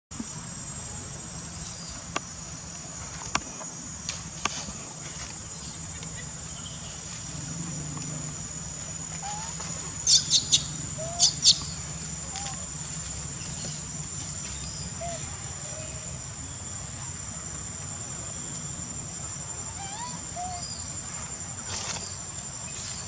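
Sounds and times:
insect chorus buzzing: 0.1s - 23.0s.

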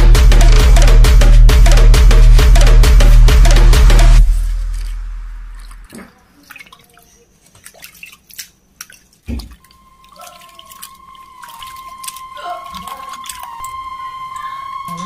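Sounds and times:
water dripping and splashing: 4.6s - 14.6s.

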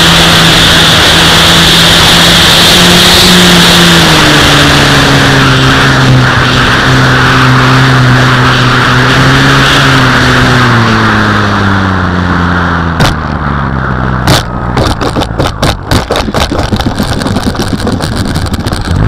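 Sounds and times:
knocks and rattles on ground: 14.2s - 19.0s.

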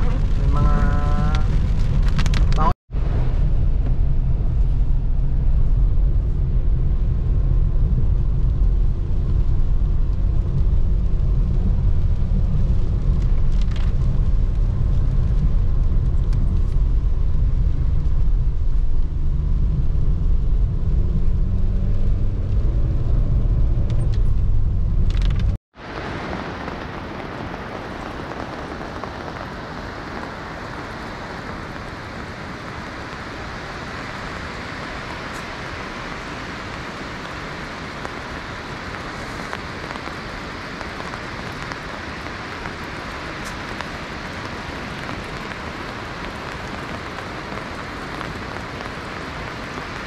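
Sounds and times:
rushing falling water: 25.8s - 50.0s.

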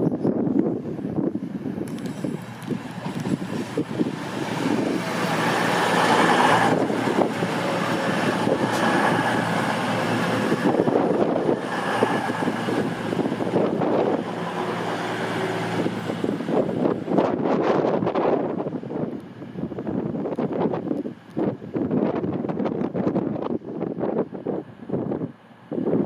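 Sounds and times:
train wheels rumbling on rails: 0.0s - 26.0s
diesel engines running: 0.6s - 19.8s.

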